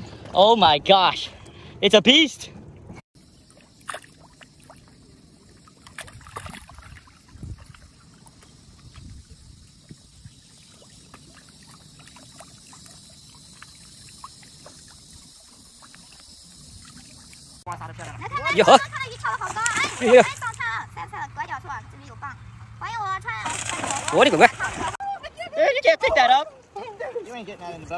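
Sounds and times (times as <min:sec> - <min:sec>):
water sloshing and trickling: 0:02.6 - 0:21.8, 0:22.4 - 0:25.0
soft knocks and splashes: 0:03.4 - 0:05.0, 0:05.6 - 0:09.2, 0:19.3 - 0:20.5, 0:23.4 - 0:25.0.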